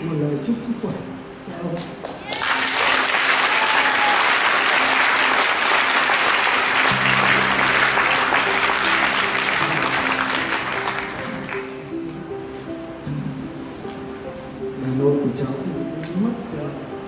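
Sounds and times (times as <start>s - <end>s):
audience applauding: 2.3s - 11.9s
soft instrumental music: 4.3s - 17.0s.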